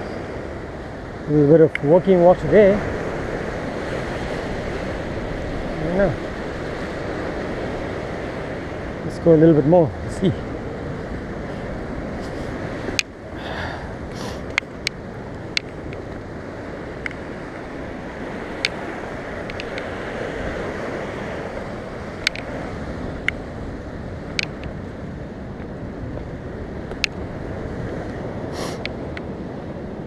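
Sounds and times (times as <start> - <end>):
surf on rocky shore: 0.0 - 30.0
wind on microphone: 0.0 - 30.0
sharp clicks: 19.4 - 19.9, 22.2 - 22.5, 24.3 - 24.7.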